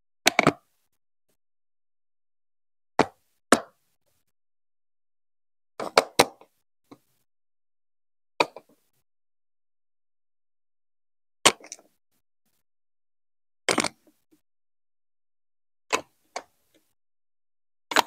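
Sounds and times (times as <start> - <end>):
plastic bricks clicking: 11.5 - 11.9, 13.7 - 14.1.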